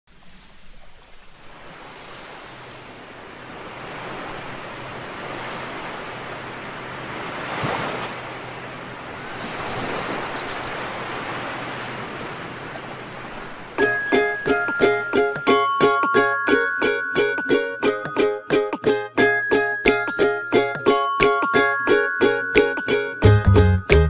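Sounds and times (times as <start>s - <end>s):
waves breaking on sandy beach: 0.1s - 17.6s.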